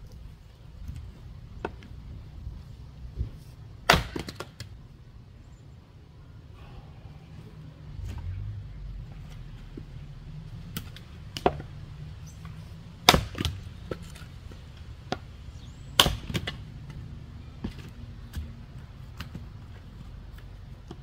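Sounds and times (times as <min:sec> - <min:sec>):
wood cracking: 0:03.8 - 0:04.7, 0:13.0 - 0:15.3, 0:16.0 - 0:17.0
splitting tool striking wood: 0:13.0 - 0:14.3, 0:16.0 - 0:16.6.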